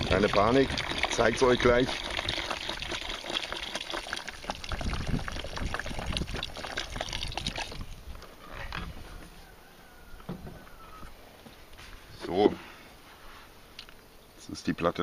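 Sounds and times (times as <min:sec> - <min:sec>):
water pouring into bucket: 0:00.0 - 0:08.2.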